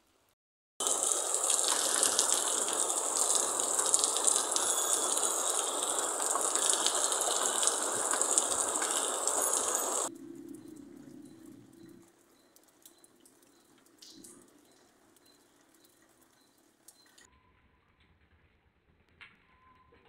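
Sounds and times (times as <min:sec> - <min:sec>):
heavy rain falling: 0:00.8 - 0:10.1
raindrops striking close by: 0:00.8 - 0:17.3.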